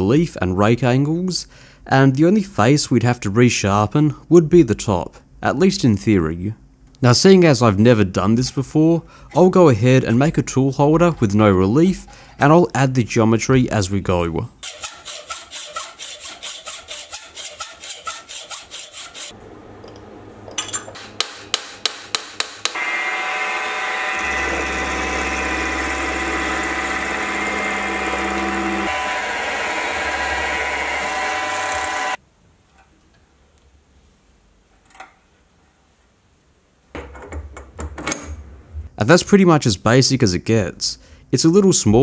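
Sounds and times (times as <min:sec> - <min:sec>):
hacksaw cutting metal: 0:14.6 - 0:19.4, 0:20.6 - 0:32.2
milling machine cutting metal: 0:22.6 - 0:32.2.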